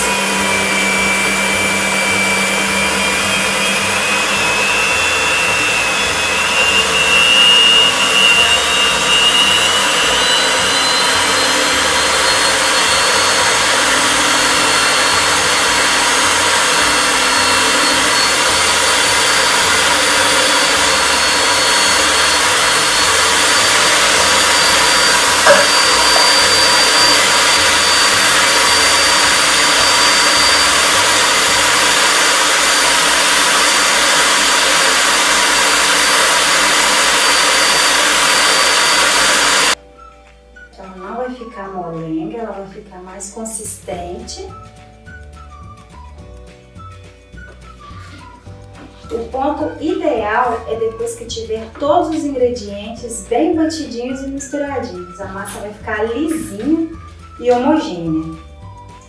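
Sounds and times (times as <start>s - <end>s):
stand mixer whine: 0.0s - 39.8s.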